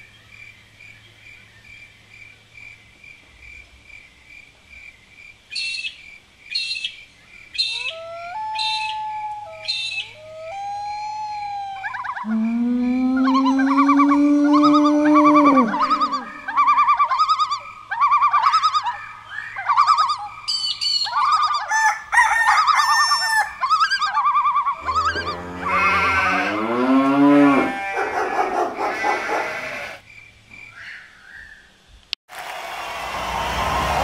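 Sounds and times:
low wavering animal call: 7.6 - 19.0, 22.5 - 30.0
rapid chirping calls: 13.3 - 21.7.

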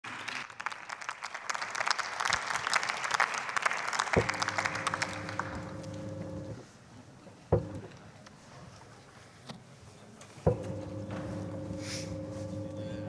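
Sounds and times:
many hands clapping: 0.0 - 6.3
steady low hum: 4.2 - 6.6, 10.5 - 13.0
knock: 7.5 - 7.8, 10.5 - 11.2.

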